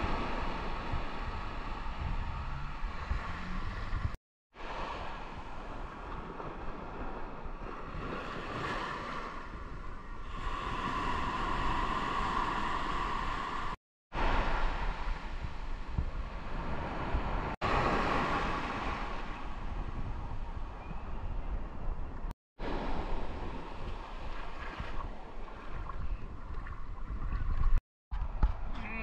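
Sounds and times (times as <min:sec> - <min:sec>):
wind buffeting microphone: 0:00.0 - 0:04.2, 0:09.3 - 0:29.0
waves washing up sand: 0:04.6 - 0:09.5, 0:10.2 - 0:19.3.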